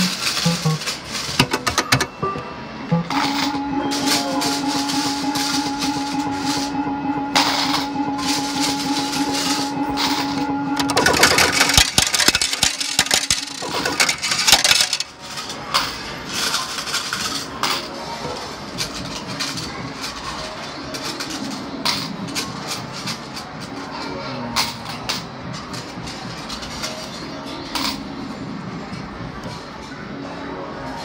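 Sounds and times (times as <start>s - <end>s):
arcade background din: 0.0s - 31.0s
steady electronic tone: 2.1s - 11.3s
rapid clattering clicks: 8.3s - 15.1s.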